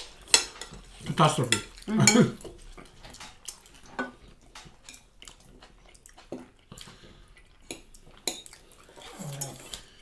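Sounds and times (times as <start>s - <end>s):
cutlery scraping on plates: 0.2s - 2.5s, 3.1s - 5.1s
close-up chewing: 1.7s - 10.0s.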